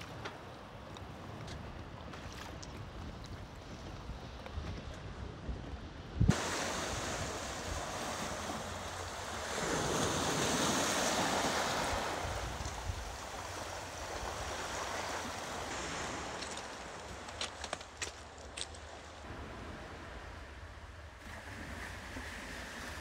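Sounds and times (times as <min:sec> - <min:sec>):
waves washing over pebble beach: 0:06.3 - 0:18.2.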